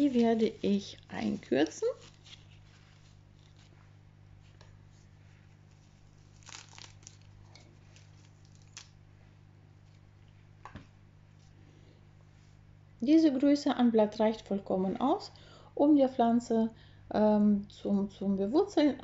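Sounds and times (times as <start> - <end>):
low steady hum: 0.0 - 19.0
leaves rustling: 5.8 - 8.9
leaves tearing: 6.0 - 9.0.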